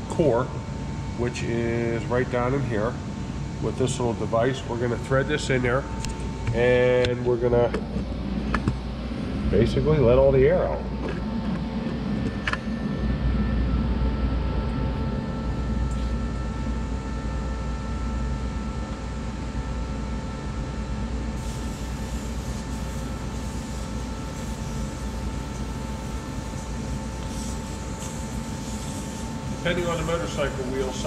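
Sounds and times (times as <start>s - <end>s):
air hissing from tire: 21.4s - 31.0s.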